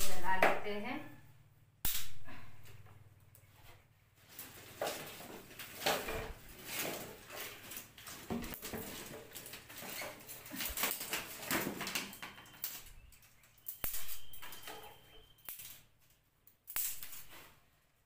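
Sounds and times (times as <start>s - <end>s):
dry twigs rustling and cracking: 4.2s - 17.5s.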